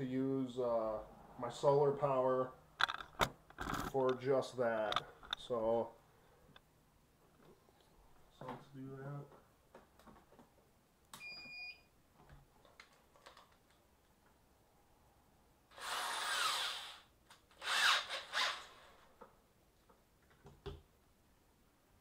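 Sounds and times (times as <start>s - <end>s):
electric drill motor: 15.7s - 19.0s.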